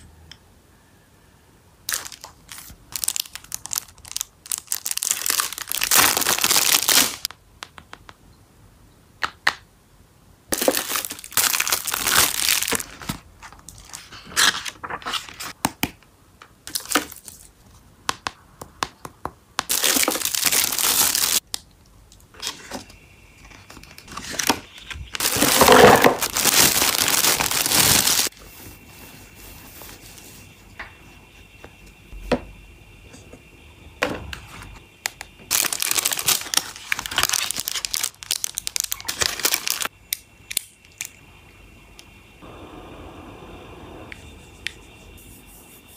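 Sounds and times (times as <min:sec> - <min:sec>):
plastic packaging crinkling: 0:01.9 - 0:07.3, 0:10.5 - 0:15.5, 0:16.7 - 0:17.5, 0:19.7 - 0:21.4, 0:23.8 - 0:28.3, 0:35.5 - 0:39.9.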